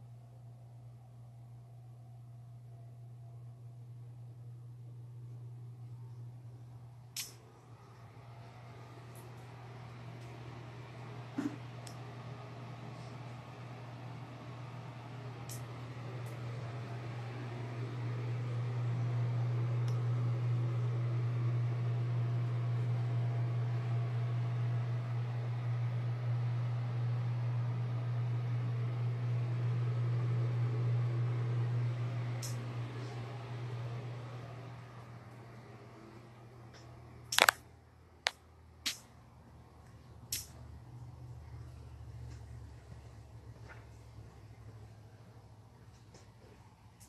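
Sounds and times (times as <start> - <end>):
ventilation fan humming: 0.0 - 47.0
short sharp clicks: 37.3 - 37.6.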